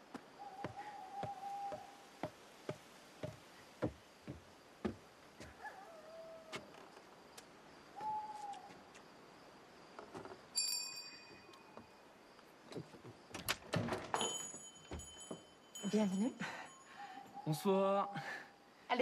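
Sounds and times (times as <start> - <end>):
owl hooting: 0.4 - 2.1, 8.0 - 8.7.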